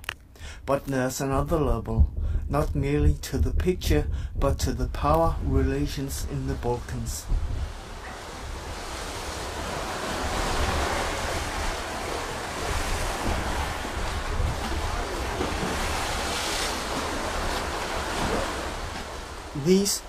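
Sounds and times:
wind buffeting microphone: 1.3 - 19.6
waves crashing against rocks: 4.6 - 20.0.

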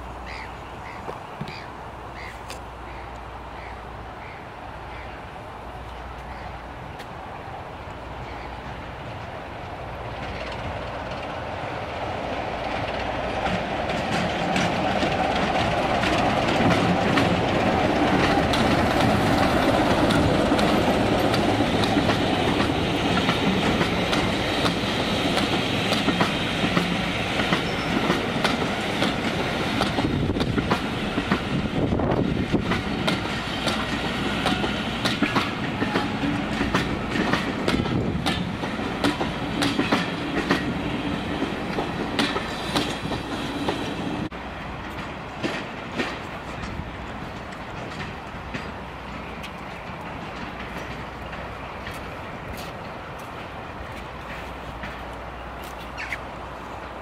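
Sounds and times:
diesel locomotive engine: 0.0 - 57.0
wheels clacking over rail joints: 7.9 - 57.0.

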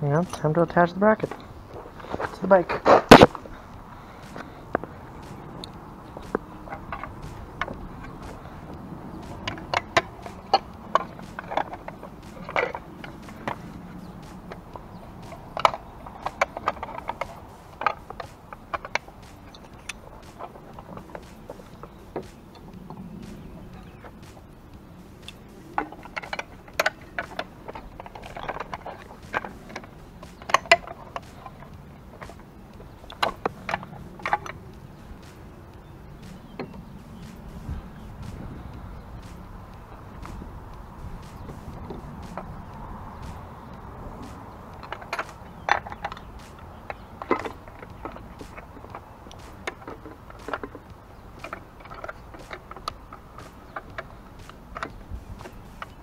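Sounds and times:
steady low rumble: 0.0 - 56.0
small metal clicks and knocks: 4.3 - 24.3, 25.2 - 34.6, 44.2 - 56.0.

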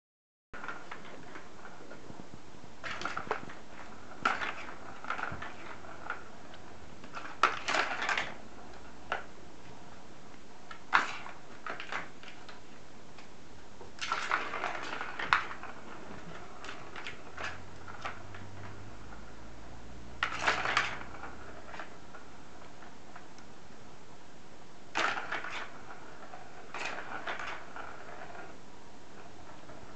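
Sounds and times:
ball rattling in plastic track: 0.6 - 2.1, 2.8 - 10.0, 10.6 - 12.8, 13.9 - 19.4, 20.2 - 23.4, 24.9 - 29.9.

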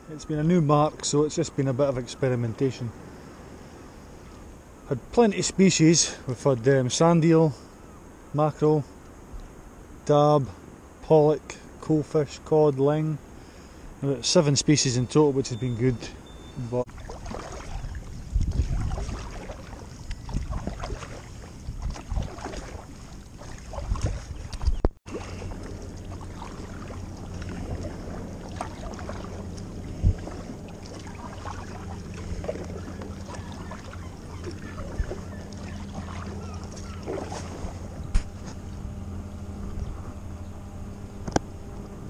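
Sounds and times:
steady low hum: 0.0 - 42.0
paddle splashing and dripping: 16.2 - 38.0
wind rumbling on microphone: 16.9 - 42.0.

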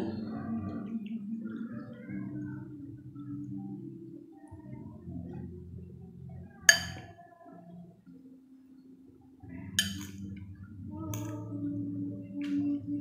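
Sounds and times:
fork clinking on ceramic plate: 6.7 - 7.1, 9.8 - 10.2.

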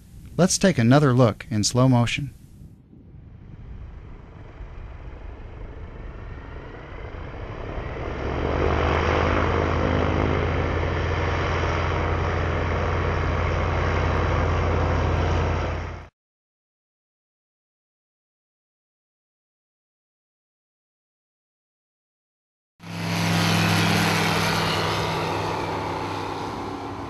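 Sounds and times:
aircraft engine and propeller drone: 0.0 - 16.1, 22.8 - 27.0.

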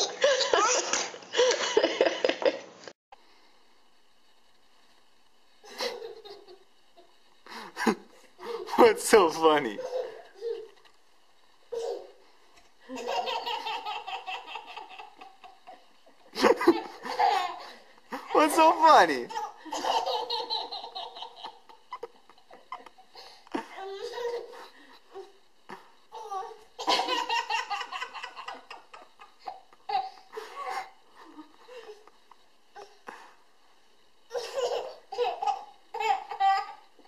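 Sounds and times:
toddler laughing: 9.8 - 10.8, 11.7 - 12.2, 12.9 - 15.9, 23.6 - 25.3, 34.3 - 36.9.

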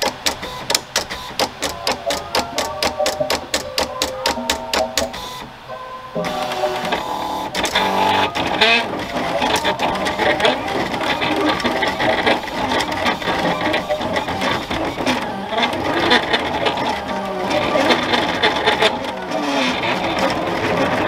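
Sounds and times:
cutter motors whirring: 6.2 - 21.0.

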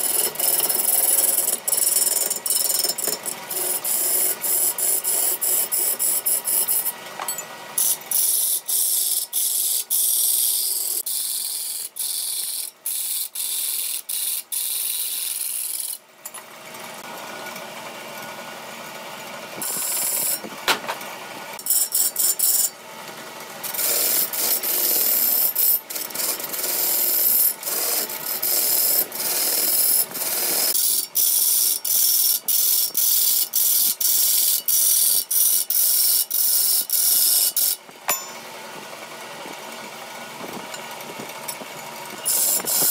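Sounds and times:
lathe tool cutting spinning wood: 0.0 - 7.0, 19.6 - 20.5, 21.6 - 35.2, 40.4 - 42.9.

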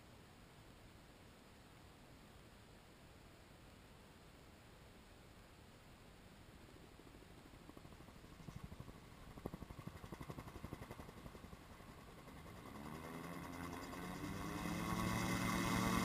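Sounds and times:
gyroplane engine pulsing: 7.7 - 16.0.

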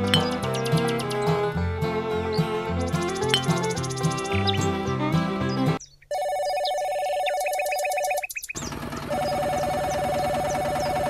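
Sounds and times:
guitar music: 0.0 - 5.8
telephone ringing: 6.1 - 8.3, 9.0 - 11.0.

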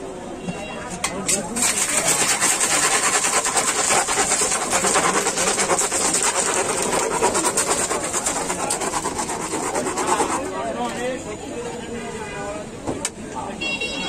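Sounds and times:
wooden churner rattling in ice water: 1.3 - 10.6.

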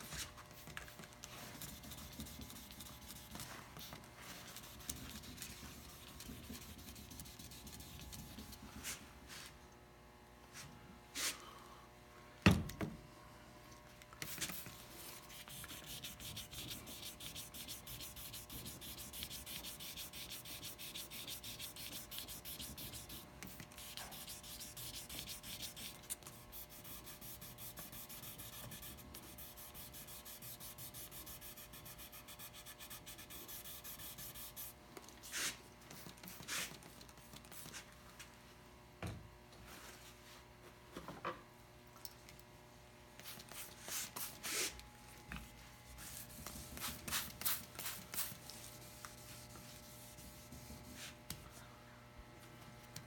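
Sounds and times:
wet sandpaper rubbing on wood: 14.3 - 35.6.

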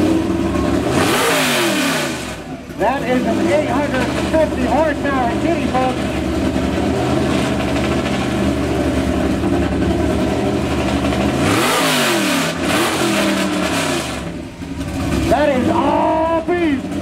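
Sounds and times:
truck engine idling and revving: 0.0 - 17.0.

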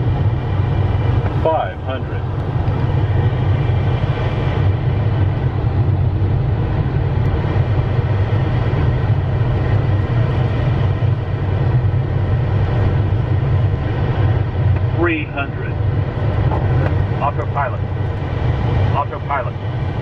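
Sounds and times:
jet cockpit rumble: 0.0 - 20.0.

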